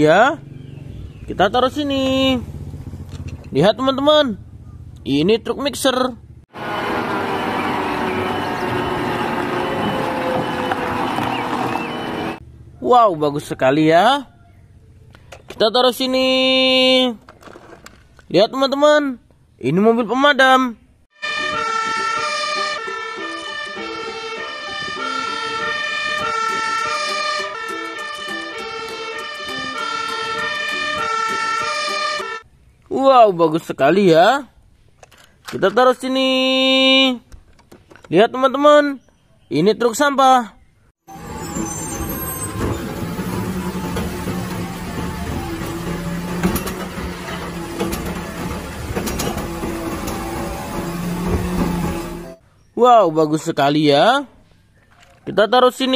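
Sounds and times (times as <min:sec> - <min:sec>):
fire engine siren: 0:06.5 - 0:12.4, 0:21.2 - 0:32.4, 0:41.1 - 0:52.4.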